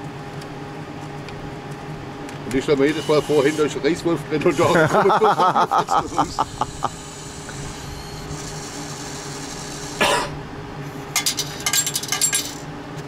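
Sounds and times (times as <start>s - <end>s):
vending machine humming: 0.0s - 13.0s.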